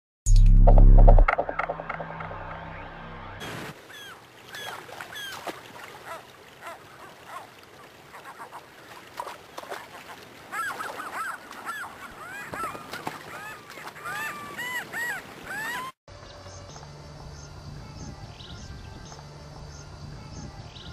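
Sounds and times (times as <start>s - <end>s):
gulls calling: 1.3s - 16.0s
rushing river water: 3.4s - 16.0s.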